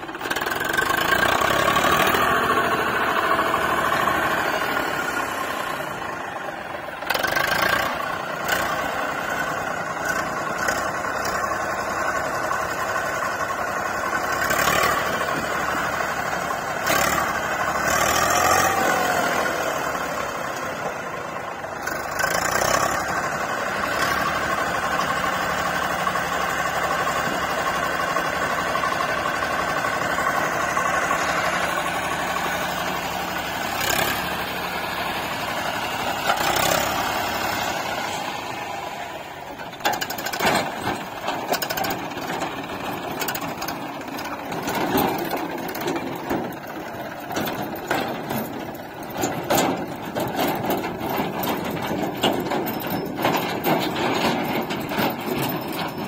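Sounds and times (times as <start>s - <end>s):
heavy diesel engine running: 0.0s - 56.0s
irregular knocks and clatter: 39.6s - 56.0s.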